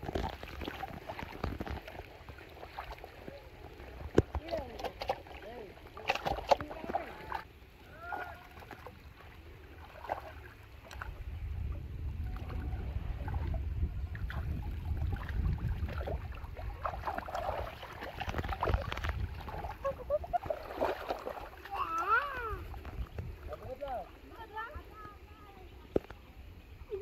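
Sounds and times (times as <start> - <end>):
muddy water sloshing and splashing: 0.0 - 27.0
low rumble: 10.9 - 20.6.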